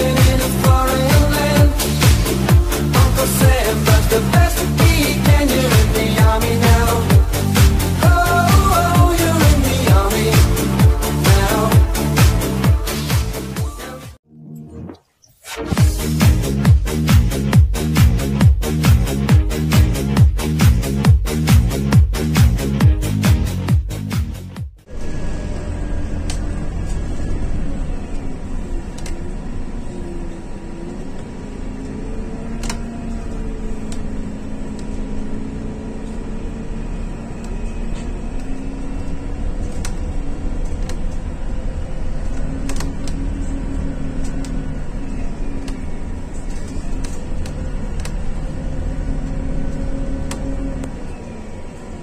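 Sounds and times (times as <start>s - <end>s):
bus engine rumble: 0.0s - 14.9s, 15.7s - 52.0s
bus body rattles: 24.9s - 52.0s.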